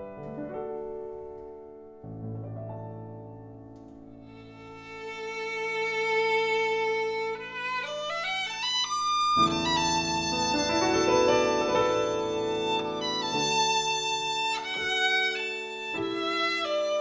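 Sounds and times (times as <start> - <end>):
piano chords: 0.0 - 17.0
violin melody: 4.1 - 17.0.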